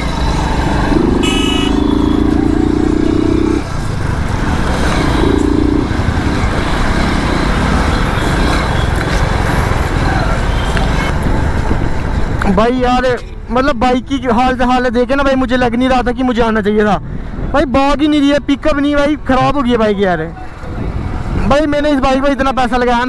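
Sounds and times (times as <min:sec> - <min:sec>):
motorcycle engine running: 0:00.0 - 0:07.9
wind and road noise: 0:00.0 - 0:23.0
vehicle horn: 0:01.1 - 0:02.3
man talking: 0:17.6 - 0:20.4.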